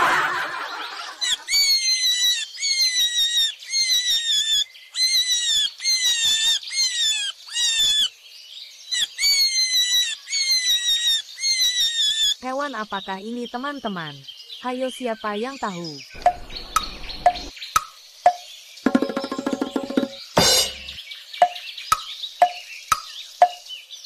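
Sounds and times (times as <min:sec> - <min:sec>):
rabbit squealing: 0:01.0 - 0:08.1, 0:09.0 - 0:12.4.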